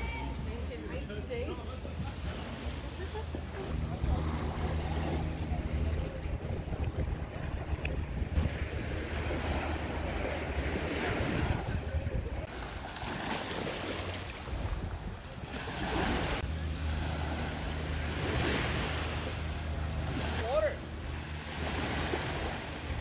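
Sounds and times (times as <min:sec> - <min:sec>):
steady low rumble: 0:03.0 - 0:23.0
small waves washing onto shore: 0:03.6 - 0:23.0
wind buffeting microphone: 0:03.7 - 0:12.9, 0:14.2 - 0:16.7.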